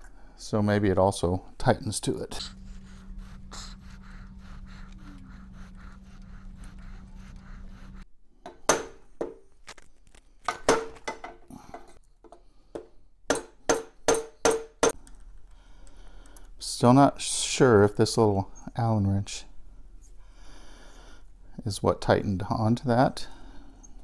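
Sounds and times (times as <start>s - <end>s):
steady low hum: 0.0s - 8.2s.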